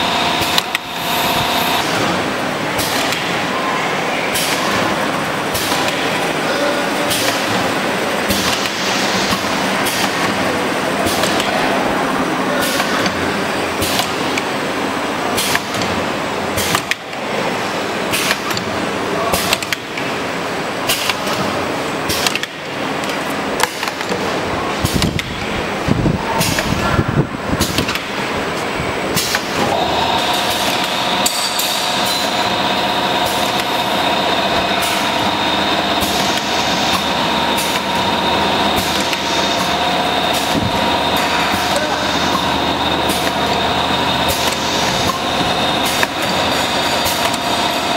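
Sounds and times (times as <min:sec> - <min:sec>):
filling machine running: 0:00.0 - 0:22.8, 0:27.6 - 0:47.9
sharp clacks of machine parts: 0:08.3 - 0:10.4, 0:16.6 - 0:17.2, 0:18.1 - 0:18.7, 0:19.3 - 0:20.1, 0:22.1 - 0:24.2, 0:27.6 - 0:28.2, 0:29.2 - 0:32.5, 0:44.2 - 0:47.9
multi-tone whine: 0:29.7 - 0:47.9.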